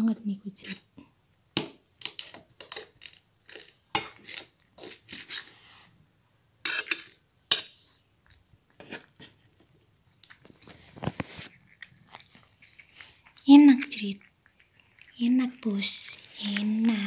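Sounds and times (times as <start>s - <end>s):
metal spoon scraping steel bowl: 6.7s - 7.7s.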